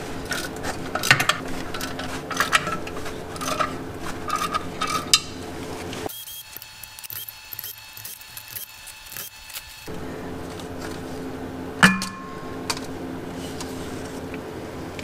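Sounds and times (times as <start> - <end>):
metal tools clinking: 0.2 - 5.4
ratchet wrench clicking: 6.1 - 9.9.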